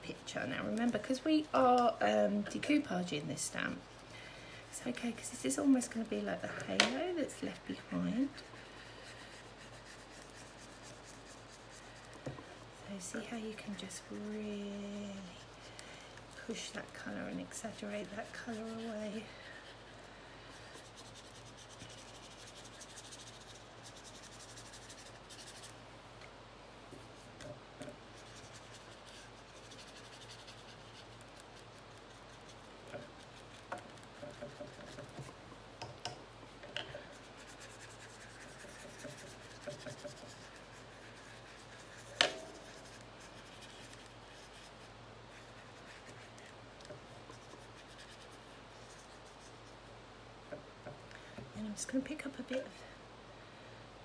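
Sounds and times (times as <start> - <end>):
paintbrush scratching on paper: 4.8 - 25.8, 27.0 - 35.4, 37.0 - 50.0.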